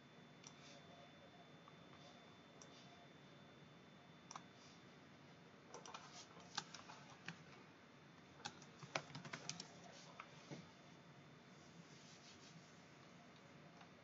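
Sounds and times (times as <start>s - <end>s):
faint computer keyboard typing: 0.4s - 0.9s, 4.2s - 4.5s, 5.7s - 7.6s, 8.2s - 10.3s.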